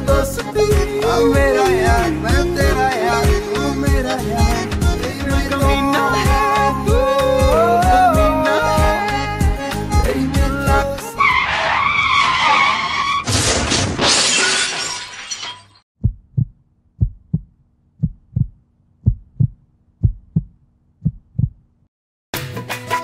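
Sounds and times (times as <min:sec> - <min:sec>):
tyre skid squealing: 0:11.2 - 0:13.5
crash smashing noise: 0:13.1 - 0:15.8
heartbeat thumps: 0:16.0 - 0:21.7.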